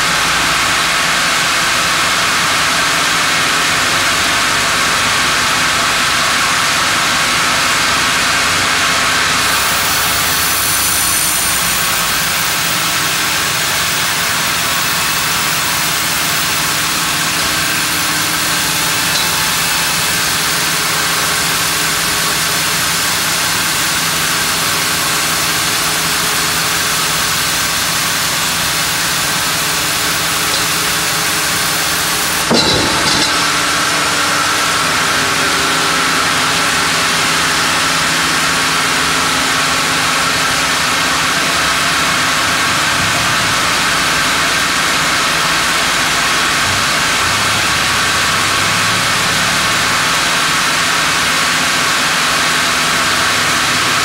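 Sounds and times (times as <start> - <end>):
band sawmill running: 0.0 - 54.0
sharp clunk: 19.0 - 20.4, 30.5 - 34.2.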